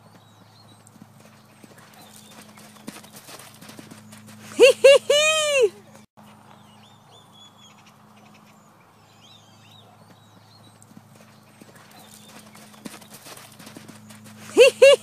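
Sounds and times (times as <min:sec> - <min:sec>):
horse hoofbeats on sand: 0:00.0 - 0:04.8, 0:10.0 - 0:15.0.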